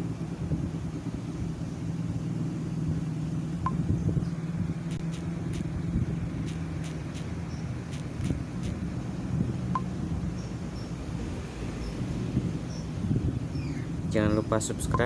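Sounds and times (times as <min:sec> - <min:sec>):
low mechanical hum: 0:00.0 - 0:15.0
touchscreen typing taps: 0:06.5 - 0:07.3.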